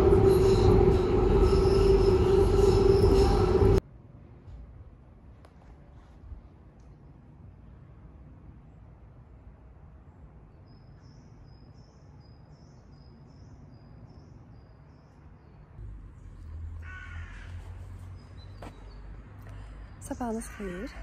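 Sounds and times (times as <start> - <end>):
crow cawing: 16.8 - 17.6, 20.4 - 21.0.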